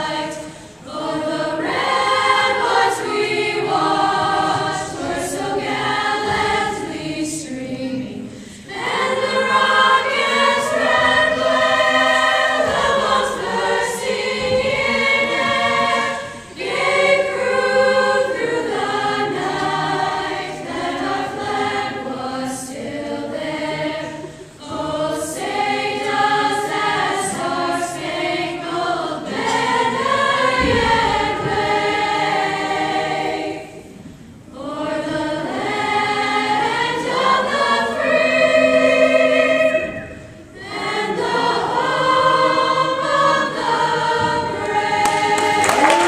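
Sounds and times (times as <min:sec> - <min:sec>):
chorus singing an anthem: 0:00.0 - 0:46.0
applause: 0:45.0 - 0:46.0.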